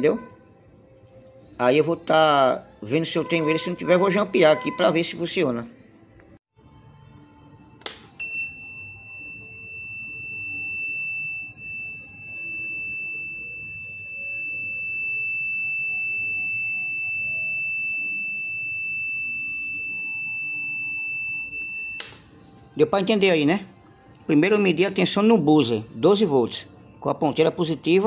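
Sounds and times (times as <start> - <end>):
high-pitched buzzer beep: 8.2 - 22.2.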